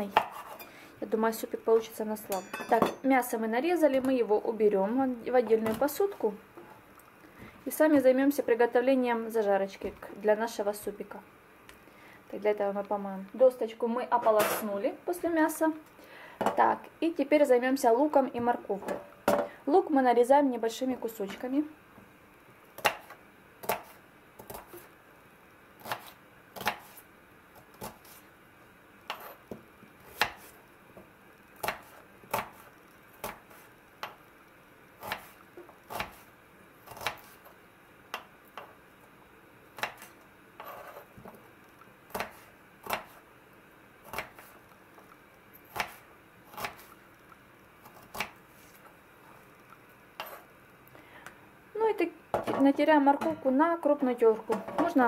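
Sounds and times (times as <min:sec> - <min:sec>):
knife chopping on wooden board: 0:00.1 - 0:00.6, 0:22.8 - 0:24.8, 0:25.8 - 0:27.0, 0:30.1 - 0:30.5, 0:31.6 - 0:34.1, 0:35.9 - 0:36.2, 0:42.1 - 0:43.2, 0:44.1 - 0:44.5, 0:45.7 - 0:46.9.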